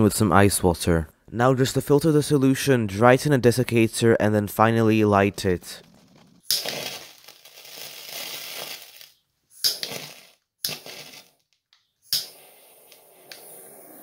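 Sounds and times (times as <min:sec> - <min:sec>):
torch lighter hissing: 0:07.8 - 0:11.3, 0:12.1 - 0:14.0
lighter click: 0:12.1 - 0:14.0.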